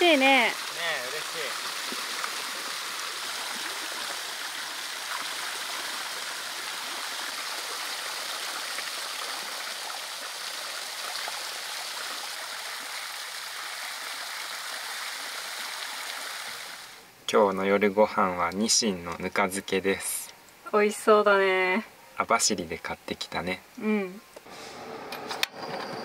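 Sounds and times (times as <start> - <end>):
water running into a pool: 0.0 - 17.0.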